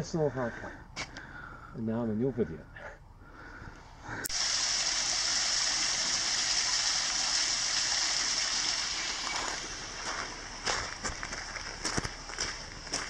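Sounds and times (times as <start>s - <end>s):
water rushing: 4.3s - 10.6s.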